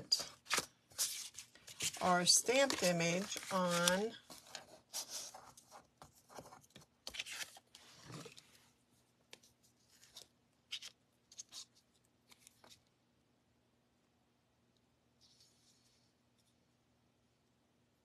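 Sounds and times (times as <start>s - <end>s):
cardstock rustling: 0.2s - 8.5s.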